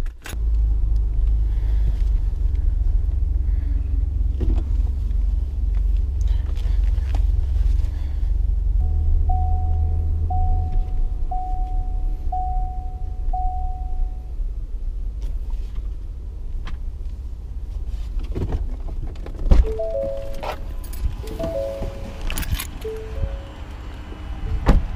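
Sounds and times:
low engine rumble: 0:00.2 - 0:24.9
dashboard warning chimes: 0:08.8 - 0:14.3, 0:19.7 - 0:24.0.

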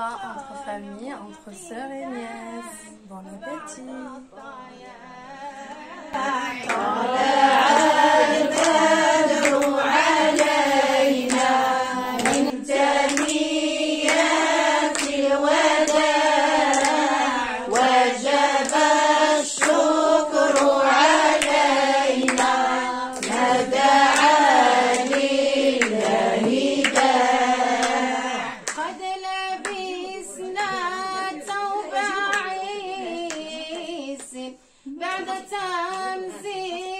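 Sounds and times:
voices singing a melody: 0:02.0 - 0:36.9
handclaps: 0:06.1 - 0:28.9, 0:29.6 - 0:29.9, 0:32.0 - 0:32.6, 0:33.2 - 0:34.4.

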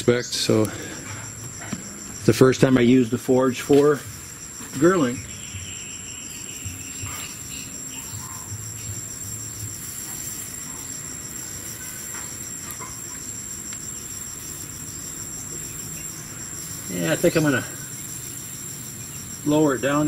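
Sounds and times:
insects trilling: 0:00.0 - 0:20.0
pulsing insect chirp: 0:00.0 - 0:20.0.

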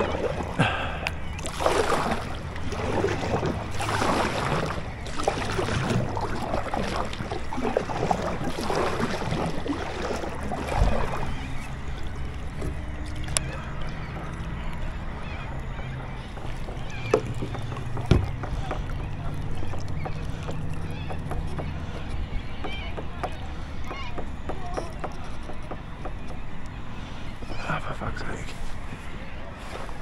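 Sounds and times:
water splashing against a kayak: 0:00.0 - 0:30.0.

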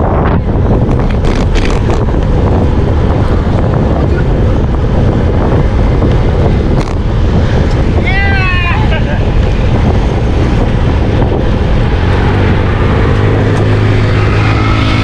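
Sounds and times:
wind rushing over microphone: 0:00.0 - 0:15.0
brief crackles: 0:00.9 - 0:02.0.

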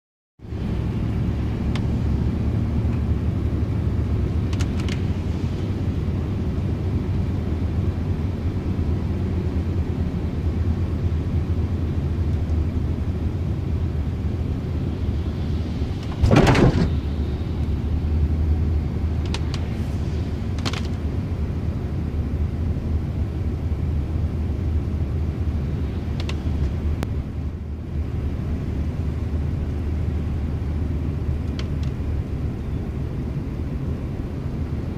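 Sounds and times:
car road rumble on wet road: 0:00.4 - 0:34.9
whoosh: 0:19.4 - 0:20.6.

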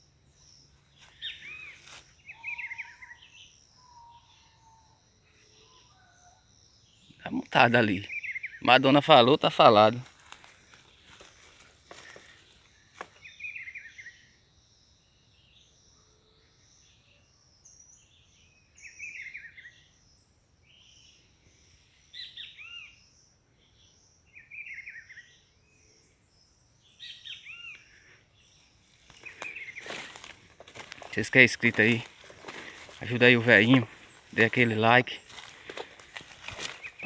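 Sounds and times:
high trill of birds or insects: 0:00.0 - 0:37.0
songbird chirping: 0:00.0 - 0:37.0.

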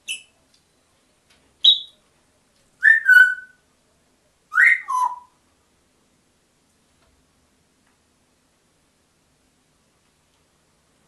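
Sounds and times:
parrot whistling: 0:00.0 - 0:00.3, 0:01.6 - 0:02.0, 0:02.8 - 0:03.6, 0:04.5 - 0:05.3.

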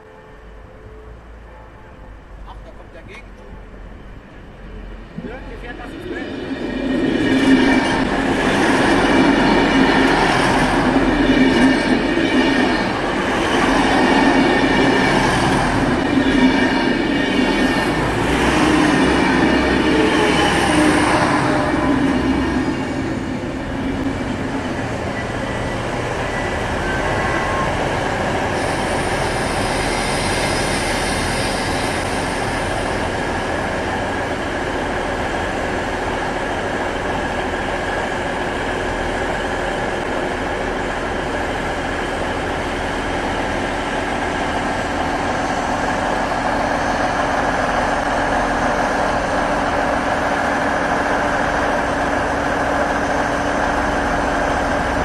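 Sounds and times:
diesel train engines running: 0:00.0 - 0:55.0
wheel and rail noise: 0:00.0 - 0:55.0
high hiss: 0:28.4 - 0:33.2.

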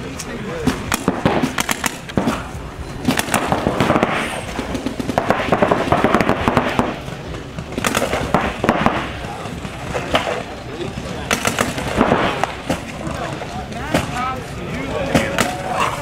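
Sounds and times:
paintball markers firing: 0:00.6 - 0:10.4, 0:11.2 - 0:14.2.

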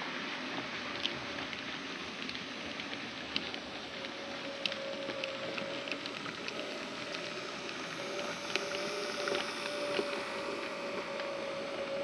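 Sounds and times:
electric motor whine: 0:04.0 - 0:12.0.

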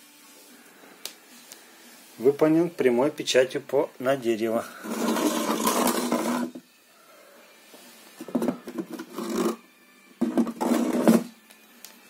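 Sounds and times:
scraping rubbing noise: 0:04.7 - 0:06.6, 0:08.4 - 0:09.6, 0:10.2 - 0:11.3.

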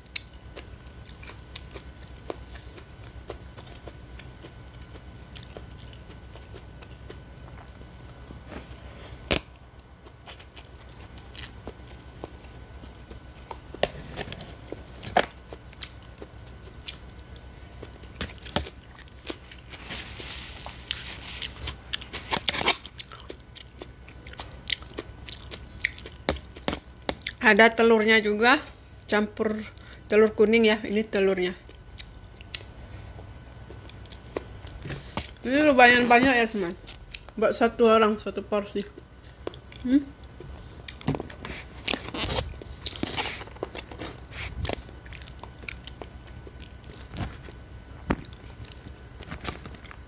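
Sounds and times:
person chewing salad: 0:00.0 - 0:27.4, 0:31.7 - 0:35.4, 0:36.8 - 0:37.4, 0:38.9 - 0:50.0.

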